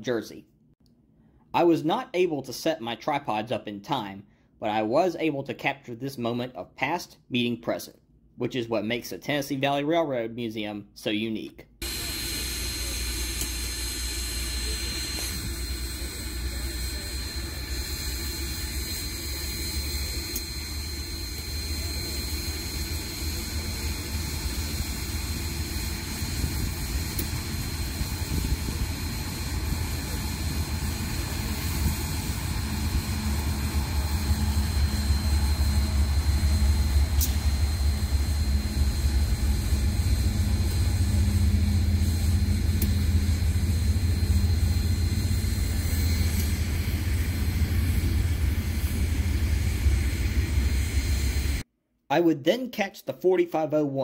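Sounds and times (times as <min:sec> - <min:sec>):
diesel locomotive rumble: 0:11.8 - 0:51.6
thin high whine: 0:11.8 - 0:51.6.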